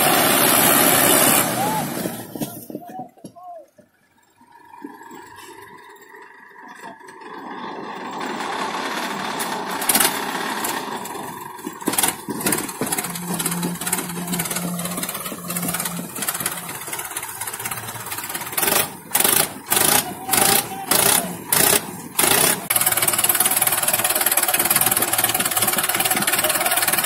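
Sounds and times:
tractor diesel engines under load: 0.0 - 27.0
loud sharp bursts: 12.9 - 27.0.

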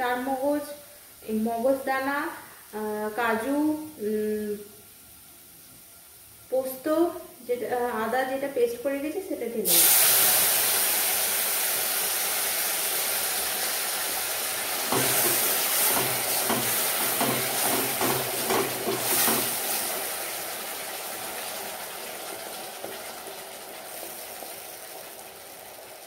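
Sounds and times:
paste sizzling in hot oil: 9.6 - 26.0
spatula scraping a pan: 14.8 - 19.9.

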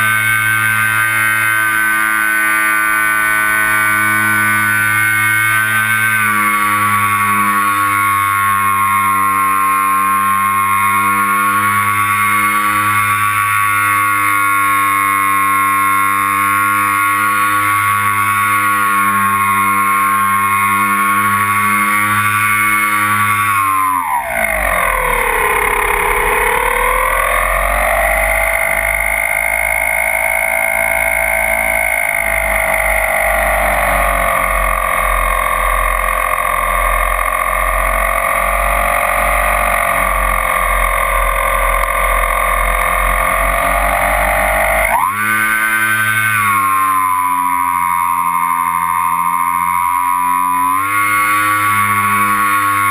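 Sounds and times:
electric motors and propellers whining: 0.0 - 52.9.

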